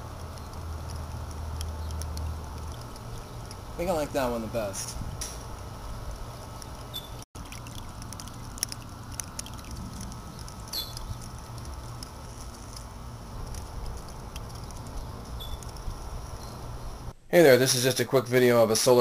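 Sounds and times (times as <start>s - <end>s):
fountain water splashing: 7.4s - 10.1s.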